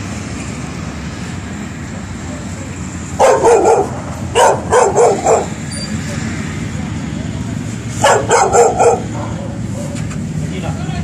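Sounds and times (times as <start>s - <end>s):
dog barking: 3.2s - 5.6s, 8.0s - 10.0s.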